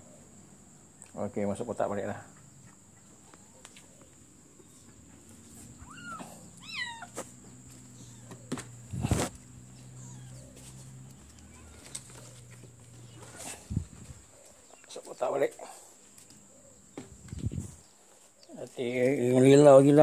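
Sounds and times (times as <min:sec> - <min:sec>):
kitten mewing: 0:05.8 - 0:07.2.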